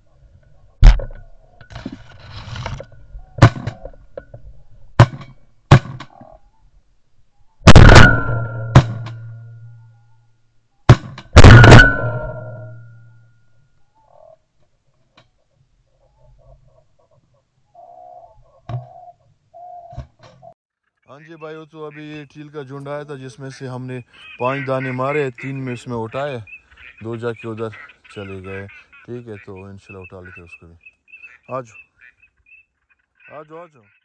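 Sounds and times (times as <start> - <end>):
shotgun shots with echo: 7.7 - 9.1, 10.9 - 12.7.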